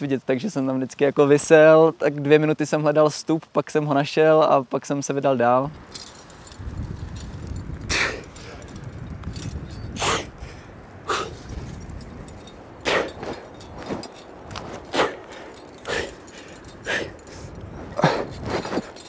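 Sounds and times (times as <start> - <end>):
sharp exhalations: 7.8 - 8.8, 9.8 - 11.6, 12.8 - 13.5, 14.8 - 19.0.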